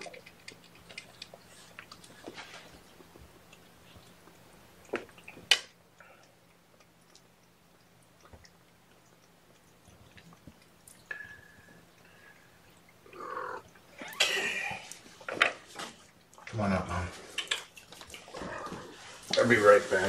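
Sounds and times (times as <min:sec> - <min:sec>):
kittens mewing: 0:13.0 - 0:15.0.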